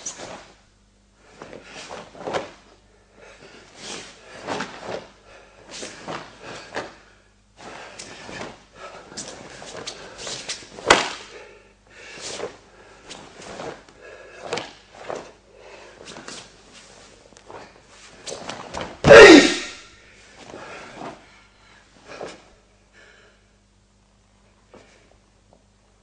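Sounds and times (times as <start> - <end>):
bare feet slapping on mat: 8.0 - 11.3
cloth snapping: 10.8 - 11.3
person shouting: 19.0 - 19.8.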